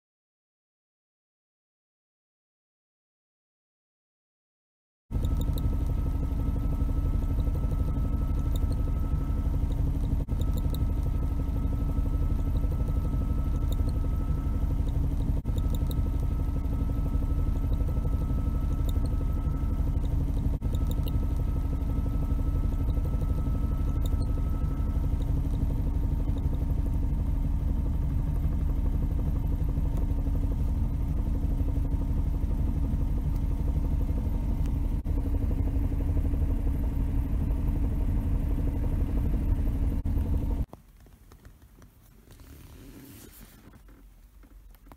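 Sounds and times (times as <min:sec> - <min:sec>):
car engine running: 0:05.2 - 0:40.6.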